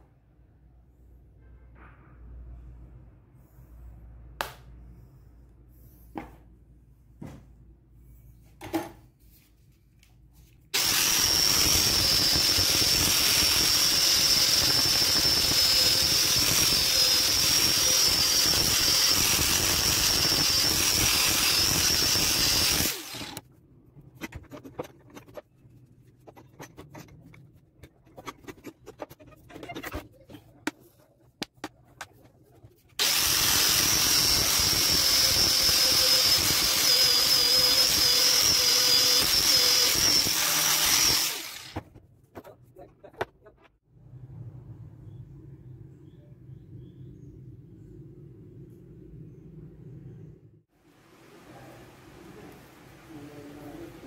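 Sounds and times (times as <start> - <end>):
angle grinder grinding steel: 10.8 - 23.4, 33.0 - 41.8.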